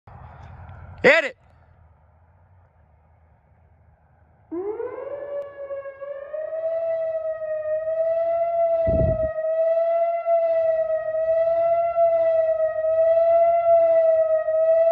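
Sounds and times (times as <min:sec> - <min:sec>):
electronic siren wailing: 0:04.5 - 0:14.9.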